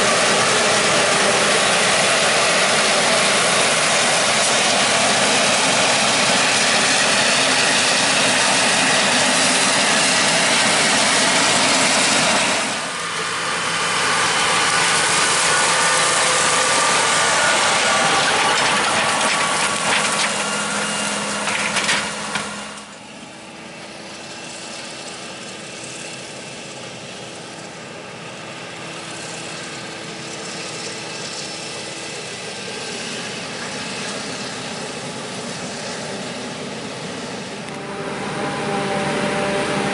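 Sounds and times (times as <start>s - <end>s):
forage harvester chopping corn: 0.0s - 23.0s
tractor passing: 0.0s - 39.9s.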